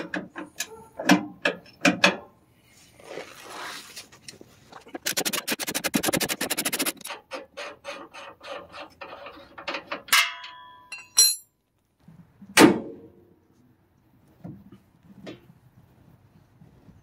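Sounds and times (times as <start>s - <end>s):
sharp metal clinks: 10.2s - 11.5s.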